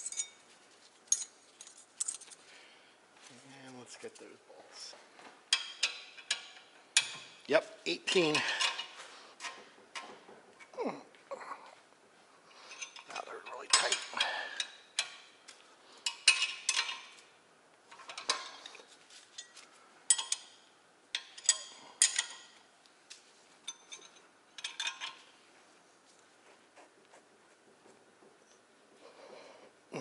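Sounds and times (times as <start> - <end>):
ratchet clinking on metal bolts: 5.5 - 7.5, 12.7 - 15.4, 16.0 - 17.2, 19.4 - 22.6, 23.7 - 25.3.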